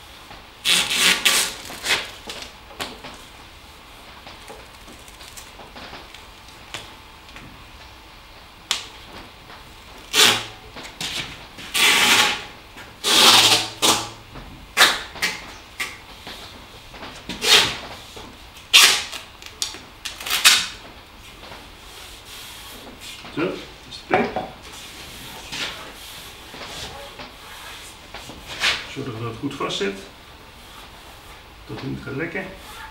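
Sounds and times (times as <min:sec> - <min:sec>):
tape pulled off roll: 0:00.6 - 0:03.4, 0:08.7 - 0:14.2, 0:14.8 - 0:21.6.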